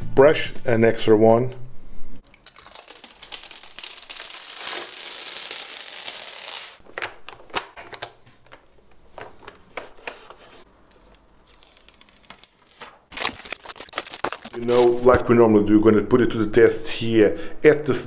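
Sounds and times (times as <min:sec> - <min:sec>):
plastic film crackling: 0:02.2 - 0:06.8, 0:11.1 - 0:15.1.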